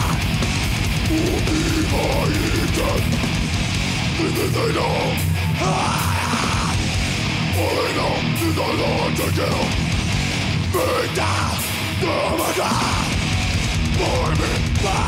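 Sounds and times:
growled vocals: 0.0 - 0.4, 1.0 - 3.2, 4.1 - 10.0, 10.6 - 15.0
fast drumming with cymbals: 0.0 - 4.4
distorted electric guitars and bass: 0.0 - 15.0.

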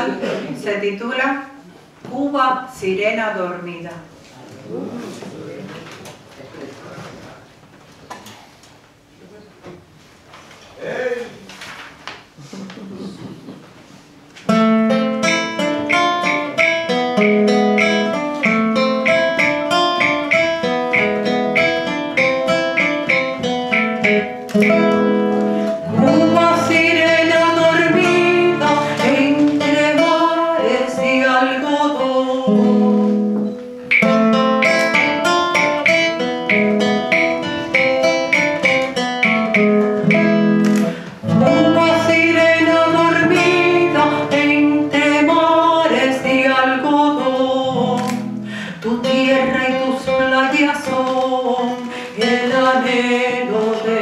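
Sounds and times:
classical guitar plucking: 14.4 - 54.0
woman singing: 25.8 - 33.4, 41.2 - 54.0.

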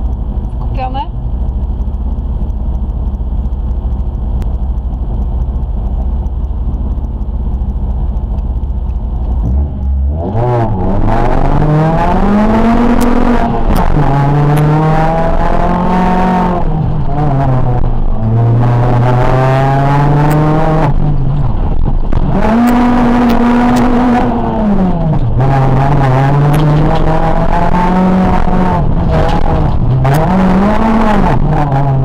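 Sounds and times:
car engine idling: 0.0 - 32.0
car engine revving hard: 9.4 - 32.0.

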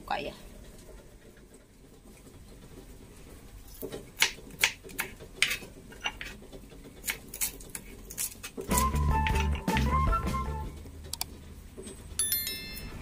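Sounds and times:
knife tapping plastic cutting board: 8.7 - 10.0.

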